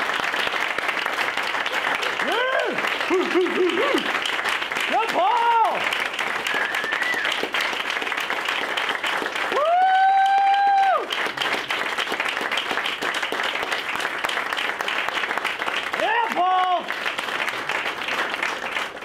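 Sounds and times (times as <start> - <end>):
audience applauding: 0.0 - 19.0
person cheering: 2.2 - 4.1, 4.9 - 5.9, 6.5 - 7.3, 9.5 - 11.1, 16.0 - 16.9.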